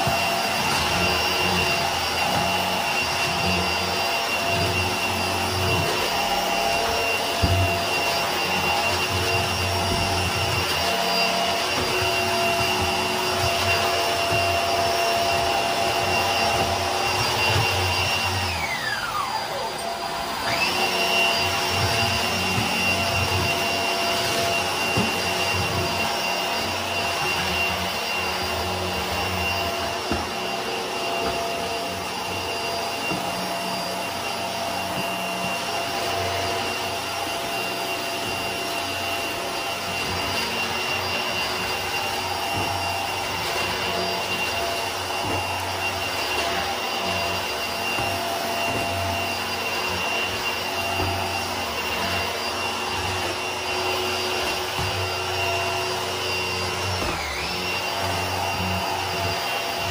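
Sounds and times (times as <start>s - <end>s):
vacuum cleaner on carpet: 0.0s - 59.9s.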